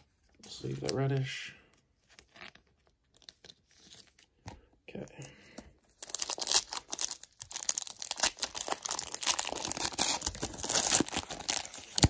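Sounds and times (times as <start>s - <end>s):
foil wrapper tearing and crinkling: 6.0s - 12.0s.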